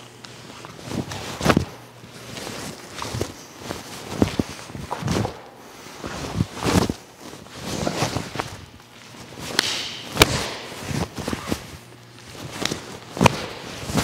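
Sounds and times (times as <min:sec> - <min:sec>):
bare feet stamping on mats: 0:09.5 - 0:11.7
sharp strike smacks: 0:09.6 - 0:10.8.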